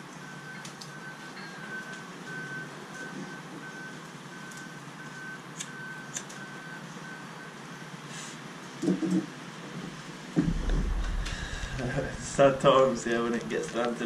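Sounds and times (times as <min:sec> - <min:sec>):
rain hiss: 0:09.8 - 0:14.0.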